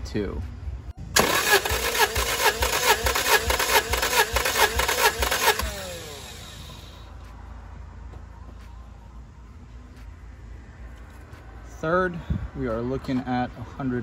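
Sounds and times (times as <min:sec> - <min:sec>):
starter spinning down whine: 0:01.1 - 0:07.0
starter cranking engine: 0:01.2 - 0:07.0.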